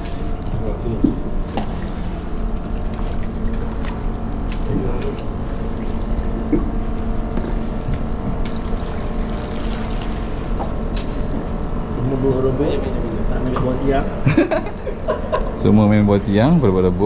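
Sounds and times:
water around hull: 0.0s - 12.1s
boat engine running: 0.0s - 14.2s.

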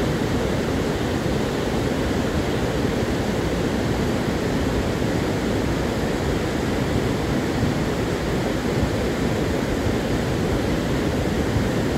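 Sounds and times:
rushing roar of flood water: 0.0s - 11.9s.

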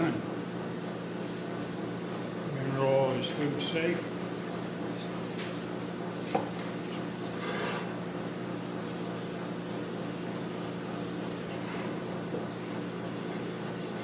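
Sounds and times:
steady low hum: 0.0s - 14.0s
rag scrubbing a cutting board: 8.5s - 14.0s.

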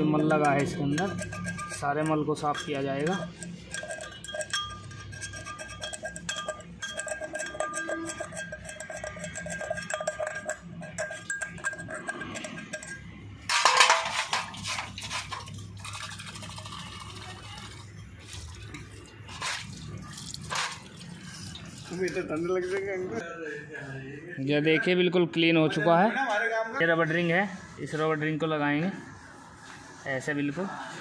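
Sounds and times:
glass bowl clinking while scrubbed: 0.0s - 23.1s.

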